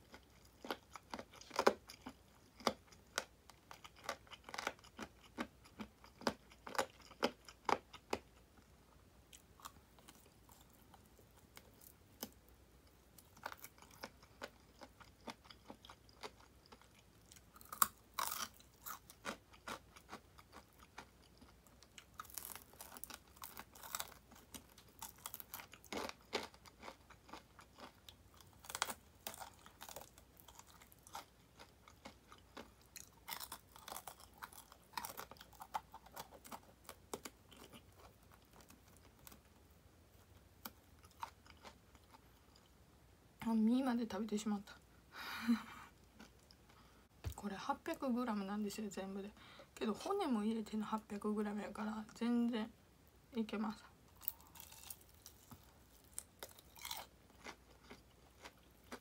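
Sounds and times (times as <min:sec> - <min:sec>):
chewing: 0:00.0 - 0:08.4, 0:09.3 - 0:39.4, 0:40.6 - 0:42.7, 0:54.2 - 0:59.0
crispy food crunching: 0:00.0 - 0:08.7, 0:09.3 - 0:42.8, 0:54.1 - 0:59.0.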